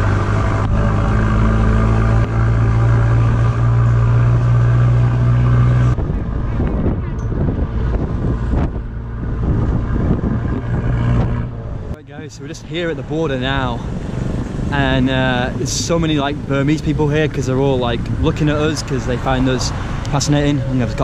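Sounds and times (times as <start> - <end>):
road noise: 0.0 - 21.0
truck engine humming: 0.0 - 21.0
passengers chatting: 14.7 - 21.0.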